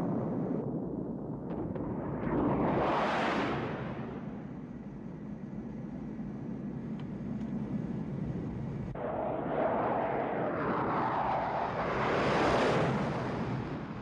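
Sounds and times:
low jet rumble: 0:00.0 - 0:14.0
whooshing jet pass: 0:01.8 - 0:04.4, 0:09.0 - 0:14.0.

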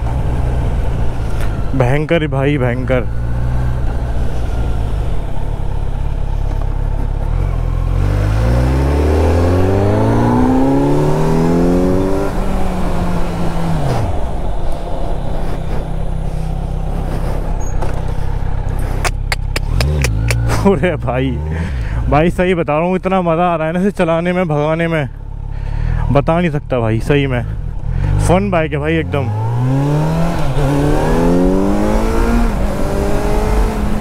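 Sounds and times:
steady low drone: 0:00.0 - 0:33.5
motorcycle engine revving: 0:03.0 - 0:21.9, 0:29.0 - 0:34.0
sharp clicks: 0:19.0 - 0:20.5.

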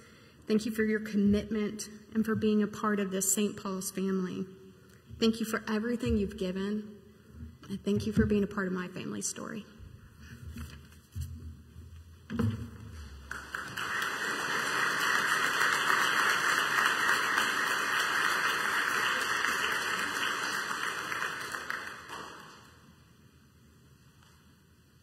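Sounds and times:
thumps on microphone: 0:10.5 - 0:13.1
congregation applauding: 0:13.1 - 0:23.0.

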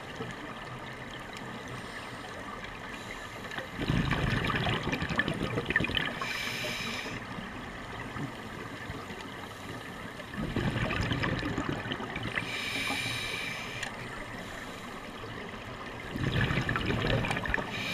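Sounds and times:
bubbling exhalations underwater: 0:03.8 - 0:06.2, 0:10.4 - 0:12.5, 0:16.1 - 0:17.7
hissing regulator inhalation: 0:06.2 - 0:07.2, 0:12.4 - 0:15.0.

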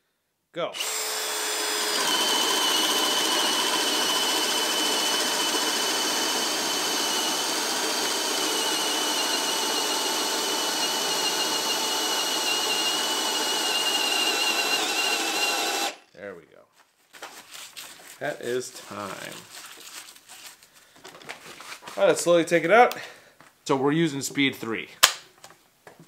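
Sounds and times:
hammer drill boring into wood: 0:00.8 - 0:16.0.

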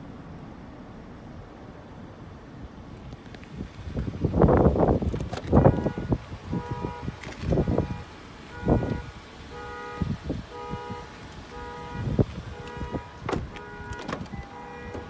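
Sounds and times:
car door warning chime: 0:12.6 - 0:15.0.

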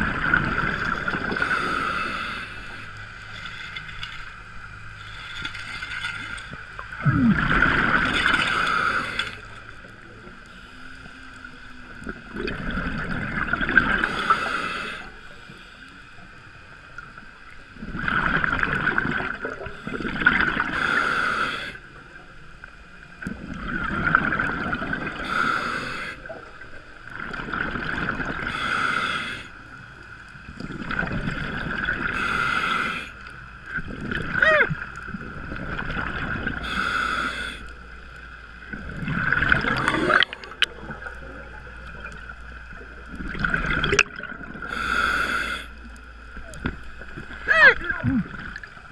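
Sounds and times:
exhaled bubbles underwater: 0:00.0 - 0:02.8, 0:06.0 - 0:10.4, 0:11.9 - 0:15.1, 0:17.0 - 0:21.0, 0:23.1 - 0:28.8, 0:30.4 - 0:32.4, 0:33.3 - 0:48.9.

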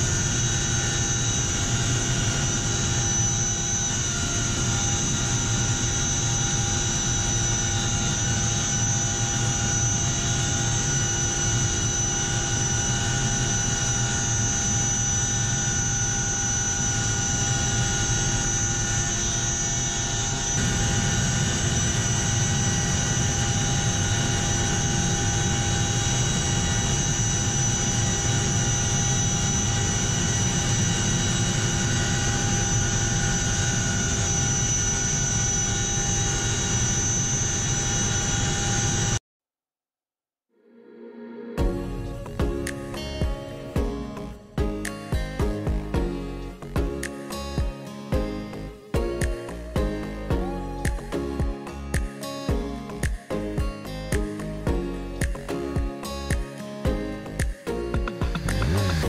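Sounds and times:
heavy low rotor drone: 0:00.0 - 0:39.1, 0:41.6 - 0:59.0
helicopter turbine whine: 0:00.0 - 0:39.2.

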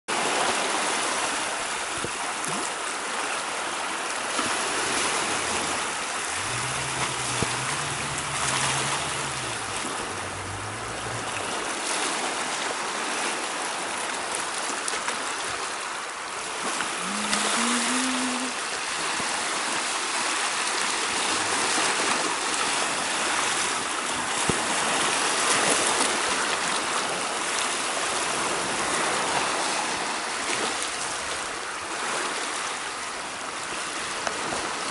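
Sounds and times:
surf washing over rocks: 0:00.1 - 0:34.9
low hum: 0:04.9 - 0:11.7.

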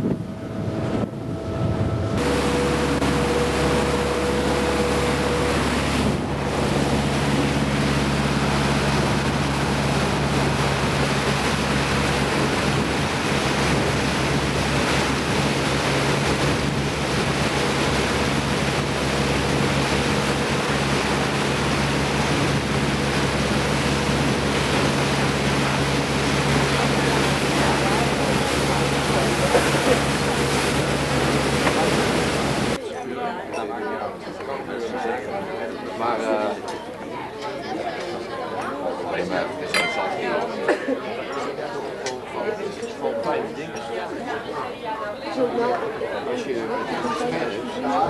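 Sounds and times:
motorboat engine drone: 0:00.0 - 0:32.8
water rushing: 0:00.0 - 0:32.8, 0:39.6 - 0:40.7
wind buffeting microphone: 0:00.0 - 0:32.8.

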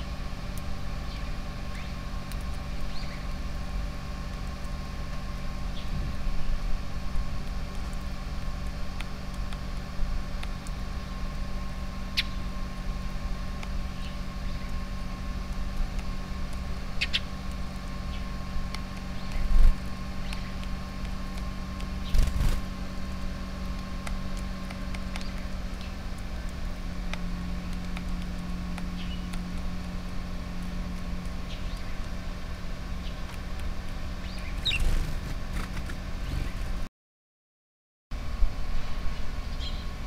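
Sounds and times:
low hum and rumble: 0:00.0 - 0:36.9, 0:38.1 - 0:40.0
sparrows chirping: 0:01.0 - 0:02.0, 0:02.8 - 0:03.4, 0:05.7 - 0:06.6, 0:12.1 - 0:12.5, 0:13.9 - 0:14.8, 0:17.0 - 0:17.3, 0:20.2 - 0:20.6, 0:28.9 - 0:29.4, 0:31.4 - 0:32.1, 0:34.2 - 0:35.2, 0:36.2 - 0:36.7, 0:39.1 - 0:40.0.

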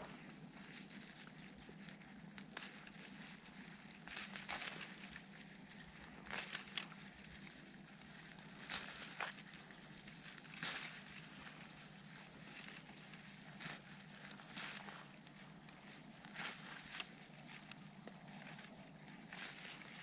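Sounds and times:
pine needles rustling: 0:00.0 - 0:20.0
branches snapping: 0:04.0 - 0:07.0, 0:08.6 - 0:09.7.

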